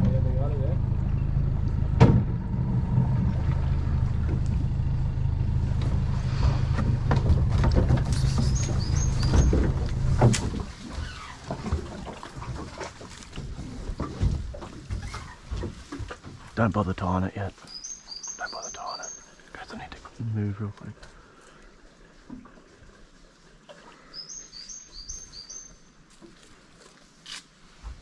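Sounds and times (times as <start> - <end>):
outboard motor idling: 0.0 - 17.3.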